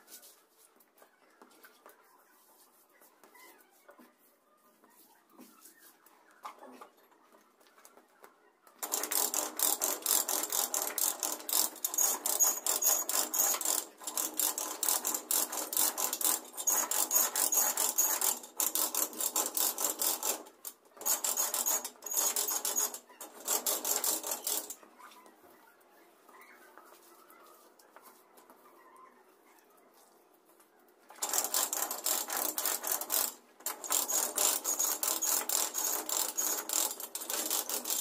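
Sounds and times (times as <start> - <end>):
brush scrubbing a floor: 0.0 - 0.8.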